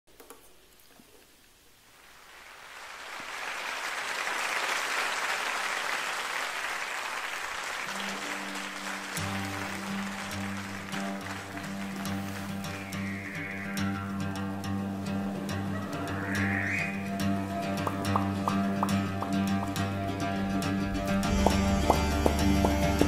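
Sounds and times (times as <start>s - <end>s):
rushing applause-like noise: 2.1s - 23.0s
backing music with low chords: 8.8s - 23.0s.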